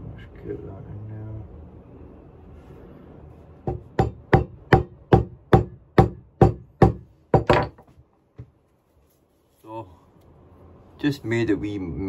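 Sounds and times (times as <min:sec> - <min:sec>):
hammer striking metal wedge: 0:03.7 - 0:07.8.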